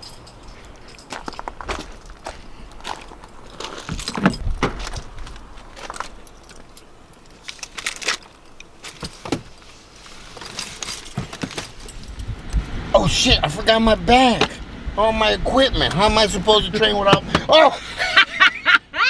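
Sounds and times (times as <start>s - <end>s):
keys jangling: 0.0s - 9.2s, 10.3s - 12.3s
rustling: 0.1s - 12.2s.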